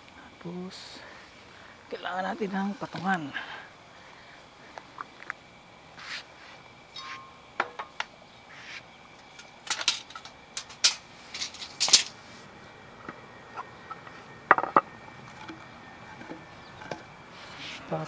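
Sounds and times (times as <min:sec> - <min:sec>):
tools and wood knocking on concrete: 0:07.0 - 0:08.1, 0:13.0 - 0:17.1.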